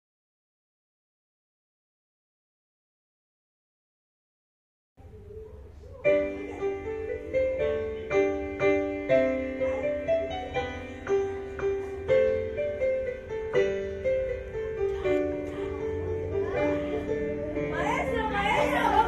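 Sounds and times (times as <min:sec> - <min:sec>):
digital piano melody over chords: 0:06.0 - 0:19.0.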